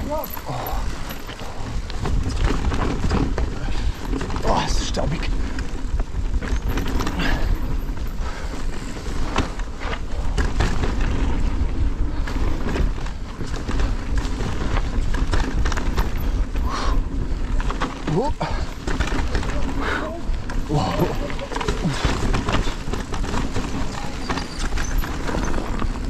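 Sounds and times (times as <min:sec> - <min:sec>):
bike knocks and rattles: 0:00.0 - 0:26.0
wind rumble on microphone: 0:00.0 - 0:26.0.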